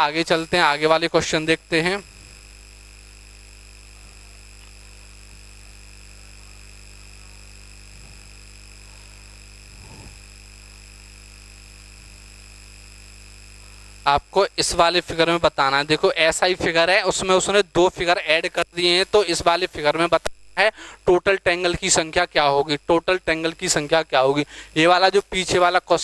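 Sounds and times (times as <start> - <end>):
high-pitched whines: 0.0 - 11.6
electrical mains hum with hiss: 0.0 - 26.0.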